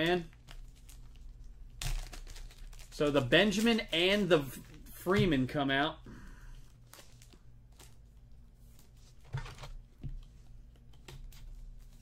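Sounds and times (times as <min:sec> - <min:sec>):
low steady hum: 0:00.0 - 0:12.0
trading cards rustling: 0:00.1 - 0:05.2.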